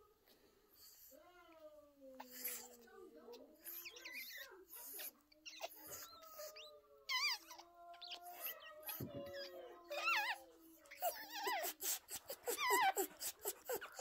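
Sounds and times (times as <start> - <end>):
puppy whimpering: 3.5 - 14.0.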